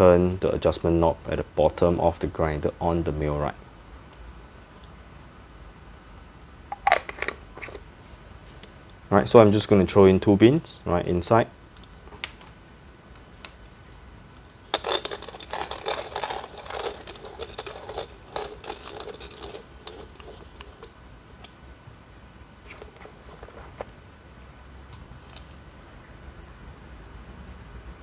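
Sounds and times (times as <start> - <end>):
hand coffee grinder crunching beans: 14.4 - 21.0.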